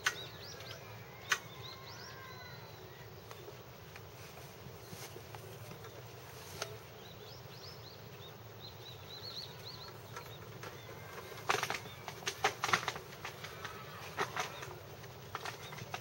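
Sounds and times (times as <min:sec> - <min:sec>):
small birds twittering: 0:00.0 - 0:16.0
wings flapping: 0:10.1 - 0:16.0.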